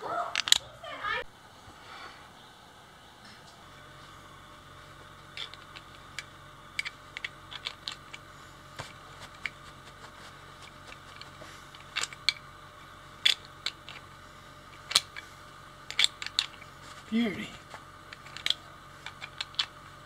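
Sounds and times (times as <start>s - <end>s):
plastic buckle clips clicking: 0.4s - 0.6s.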